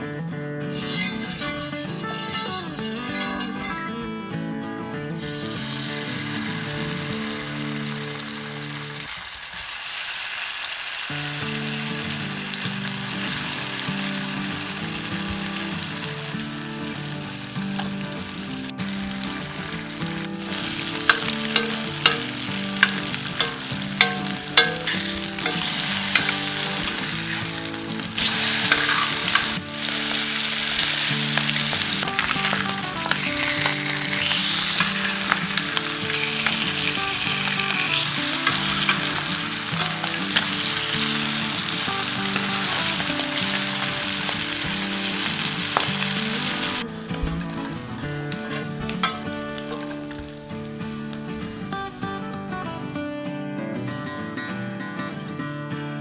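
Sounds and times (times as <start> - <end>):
spatula scraping pan: 0.8 - 2.2, 18.8 - 44.7
fish sizzling in oil: 5.2 - 51.6.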